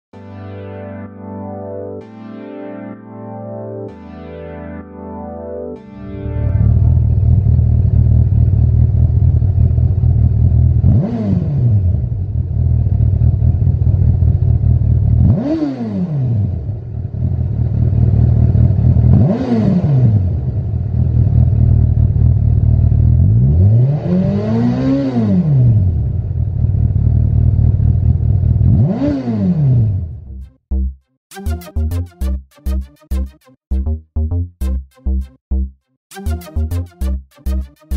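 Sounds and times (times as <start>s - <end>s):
motorcycle engine idling and revving: 6.7s - 30.4s.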